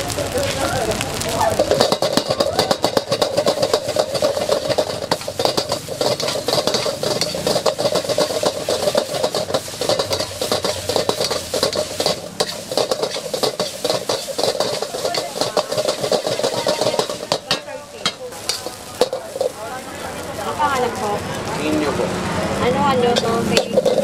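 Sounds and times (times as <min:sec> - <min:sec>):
food sizzling: 0:00.0 - 0:24.0
metal spatula scraping wok: 0:01.6 - 0:19.7, 0:23.0 - 0:24.0.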